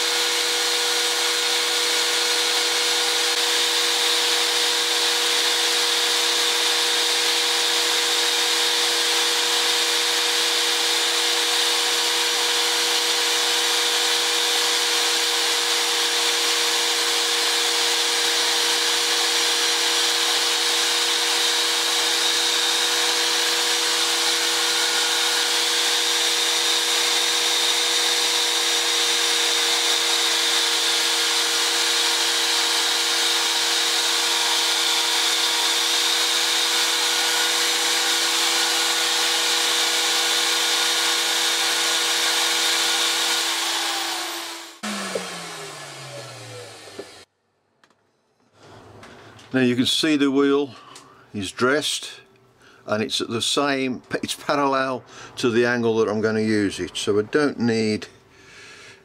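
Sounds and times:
grinder motor hum: 0.0 - 47.3.

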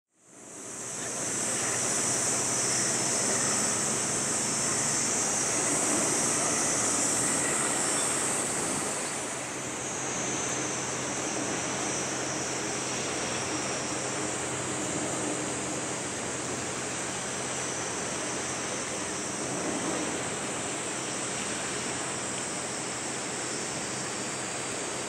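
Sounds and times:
high-pitched hiss: 0.6 - 14.4.

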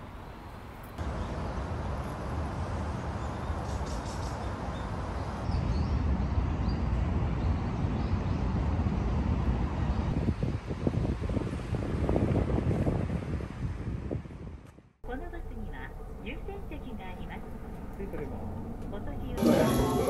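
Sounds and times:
steady low rumble: 15.0 - 20.0.

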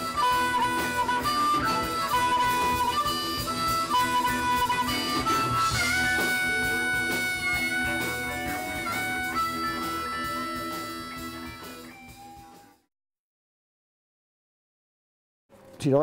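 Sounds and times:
blues harmonica wailing: 0.0 - 12.6
electric guitar: 0.0 - 12.8.

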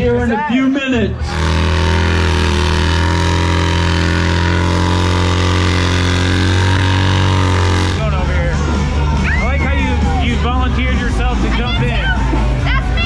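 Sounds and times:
motorcycle engine at high revs: 1.2 - 9.0
rear tyre spinning: 1.2 - 12.7.

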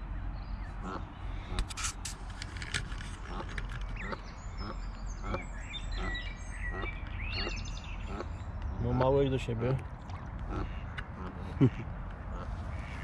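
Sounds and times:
goslings peeping: 0.7 - 1.7, 3.2 - 13.0
goose giving short low calls: 10.4 - 13.0.

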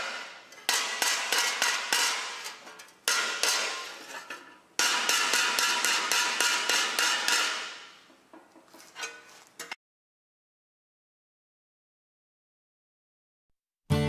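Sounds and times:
hammer striking steel on anvil: 0.0 - 8.2.

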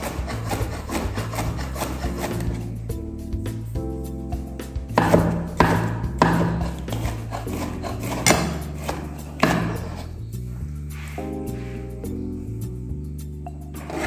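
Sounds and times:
background music: 0.0 - 14.0
blade knocking on wooden board: 4.9 - 10.0
knife slicing pepper: 5.0 - 10.1.

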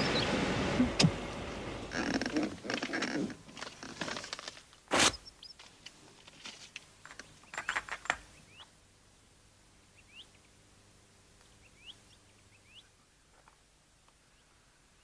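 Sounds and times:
faint bird chirps: 9.9 - 10.6, 11.4 - 13.4.

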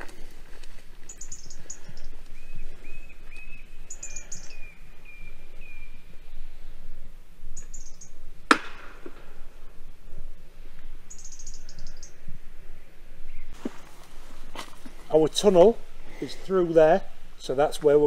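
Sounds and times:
whistled bird notes: 1.1 - 6.6, 7.6 - 8.2, 11.1 - 12.2.

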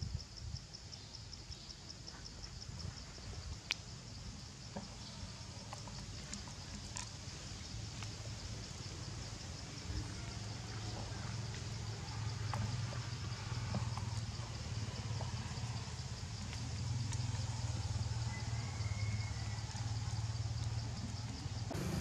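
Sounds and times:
low motor hum: 21.6 - 22.0.

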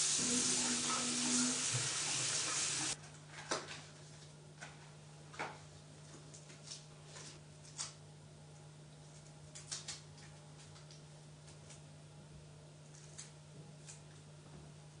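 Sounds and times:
tap running into sink: 0.1 - 3.0.

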